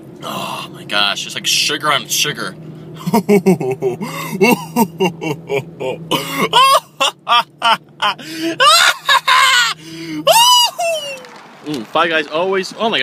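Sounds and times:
man yelping and vocalizing: 3.1s - 11.2s.

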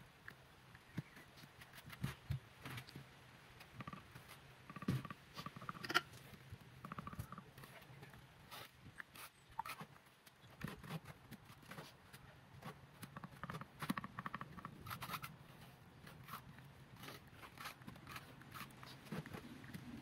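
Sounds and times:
trowel scraping mortar: 16.0s - 19.5s.

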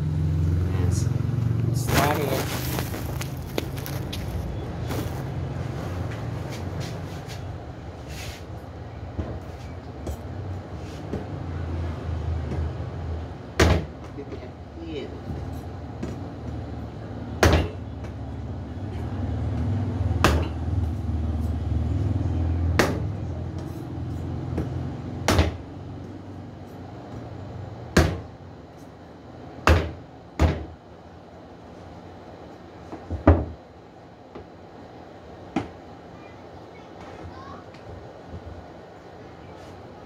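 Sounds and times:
cleaver chopping on wooden board: 17.4s - 17.8s, 20.2s - 20.6s, 22.8s - 23.7s, 24.6s - 25.6s, 28.0s - 28.2s.

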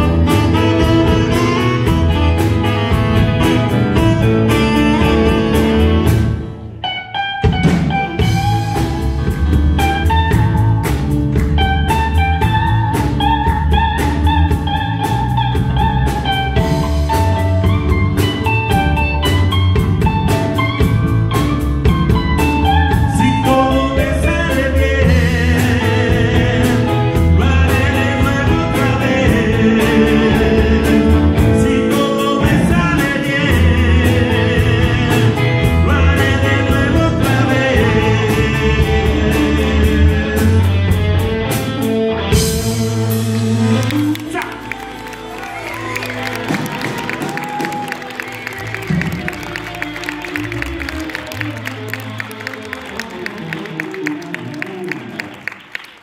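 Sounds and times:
blues-rock band playing: 0.0s - 56.0s
lead vocal singing: 22.9s - 41.3s.

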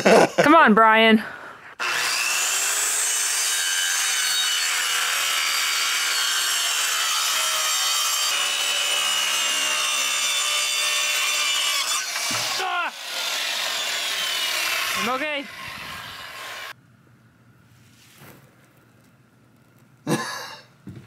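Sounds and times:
circular saw whining: 1.7s - 16.8s.

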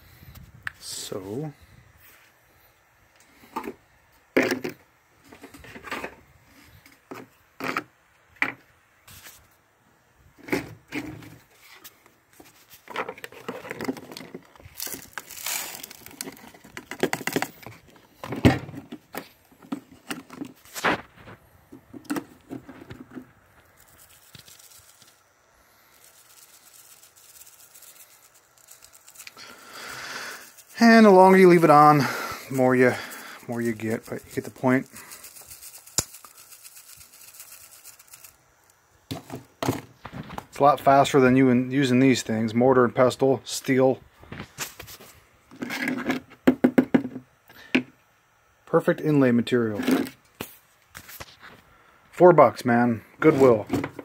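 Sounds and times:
soft hiss of sieve shaking: 0.0s - 4.3s, 9.0s - 9.8s, 10.5s - 18.3s, 19.2s - 45.3s, 52.4s - 54.0s
grit scraping: 25.9s - 38.4s.

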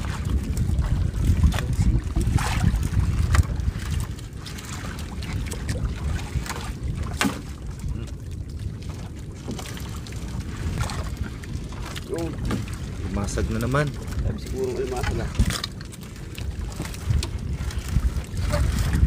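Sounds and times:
wind rumbling on microphone: 0.0s - 19.0s.

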